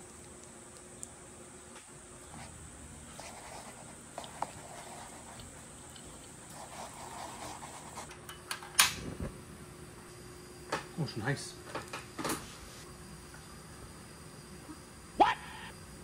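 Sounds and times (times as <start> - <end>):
chopsticks stirring noodles in cup: 3.1 - 8.1.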